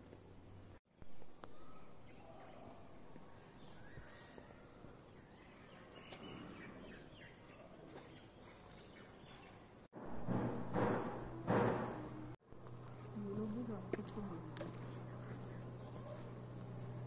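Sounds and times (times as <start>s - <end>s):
bird chirps: 1.5s - 9.6s.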